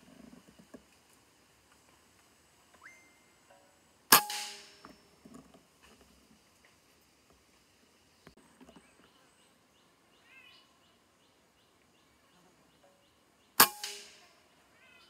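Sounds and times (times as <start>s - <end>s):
faint regular chirping: 2.8s - 3.8s, 7.9s - 15.0s
air rifle shot: 4.1s - 4.8s, 13.6s - 14.3s.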